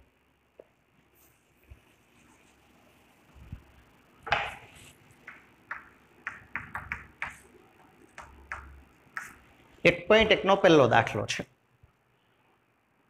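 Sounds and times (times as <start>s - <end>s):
chalk tapping and scraping: 4.3s - 9.6s
chalk knock on blackboard: 5.3s - 7.4s, 8.2s - 9.4s.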